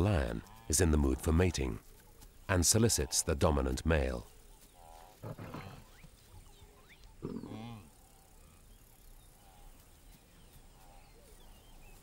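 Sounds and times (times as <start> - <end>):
lion growling: 5.2 - 5.9, 7.2 - 8.5.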